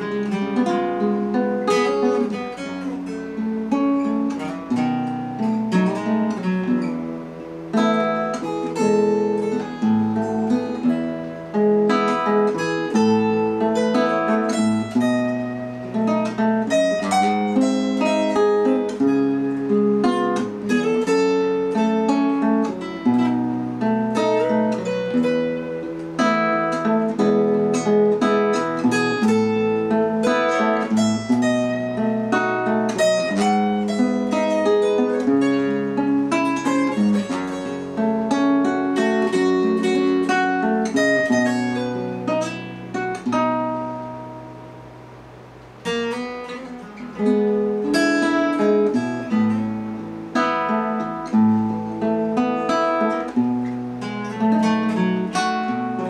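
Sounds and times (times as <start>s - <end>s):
acoustic guitar duet: 0.0s - 56.0s.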